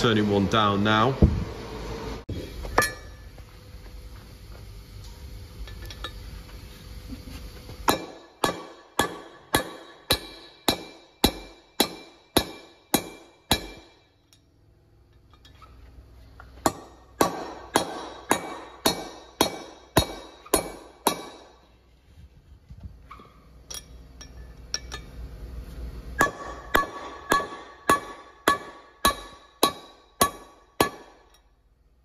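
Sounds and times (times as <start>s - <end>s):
hammer striking steel drift: 2.7s - 3.3s, 7.8s - 14.5s, 16.6s - 21.6s, 26.2s - 31.6s
light metallic clinks: 23.6s - 25.2s.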